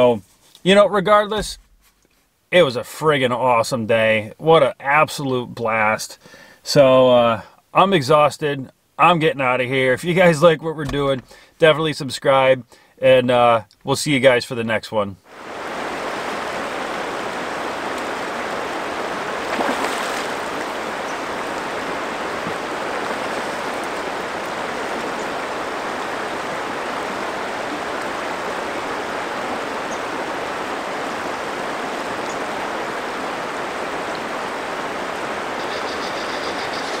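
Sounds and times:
river rushing over riffle: 0:15.3 - 0:37.0.

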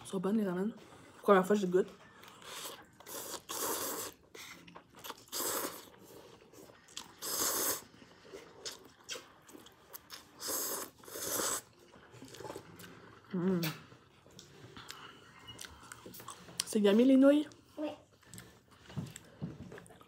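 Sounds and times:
person chewing: 0:02.0 - 0:16.7, 0:18.1 - 0:20.0
person slurping noodles: 0:02.4 - 0:09.2, 0:10.2 - 0:13.7.

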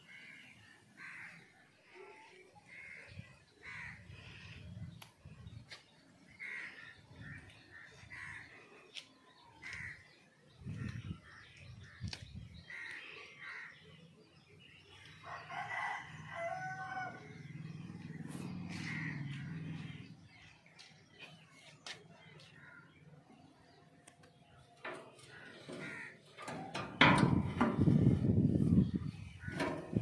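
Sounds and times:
birds calling: 0:00.0 - 0:30.0
rooster crowing: 0:15.2 - 0:17.3.

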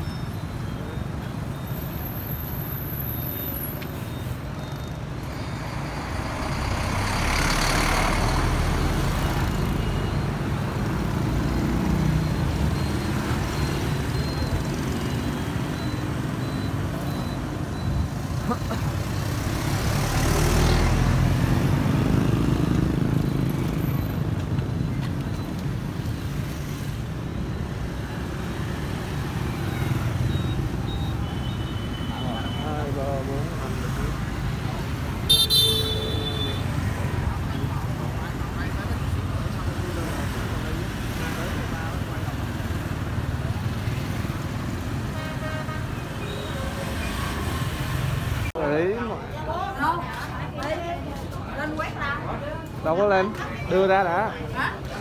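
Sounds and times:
vehicle engines running: 0:03.8 - 0:31.3
vehicle passing: 0:05.5 - 0:09.8.

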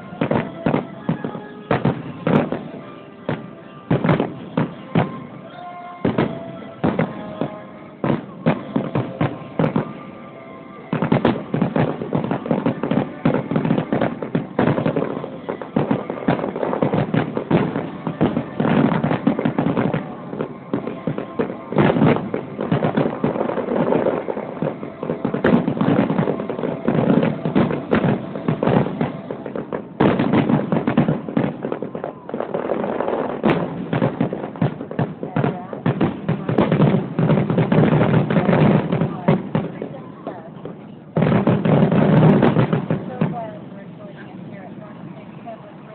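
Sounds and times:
fireworks booming: 0:00.0 - 0:45.9.

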